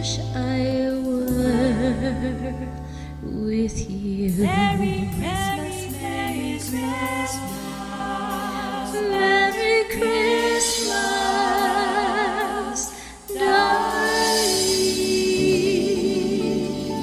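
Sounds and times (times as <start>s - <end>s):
woman singing with vibrato: 0.0s - 2.6s, 3.3s - 17.0s
backing music: 4.0s - 17.0s.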